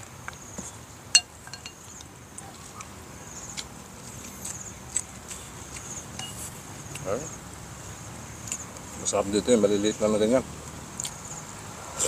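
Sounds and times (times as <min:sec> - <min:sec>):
spoon working at fish: 0:01.2 - 0:01.8, 0:06.1 - 0:06.5
chewing clicks and taps: 0:08.4 - 0:08.9, 0:10.7 - 0:11.3.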